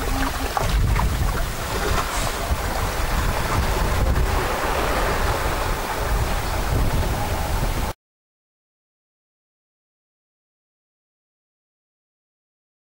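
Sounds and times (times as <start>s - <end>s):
shallow surf washing: 0.0s - 8.0s
wind buffeting microphone: 0.0s - 8.0s.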